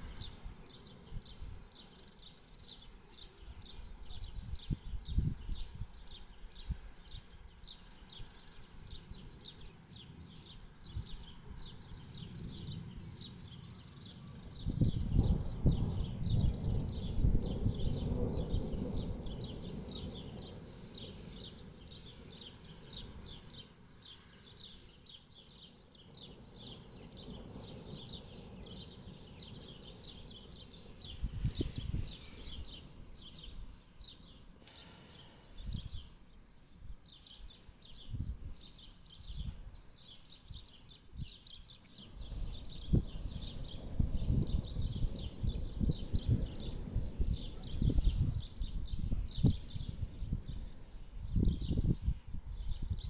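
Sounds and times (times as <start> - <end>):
small birds chirping: 0.0 - 53.0
thunder rumbling: 14.6 - 22.0, 42.1 - 50.4.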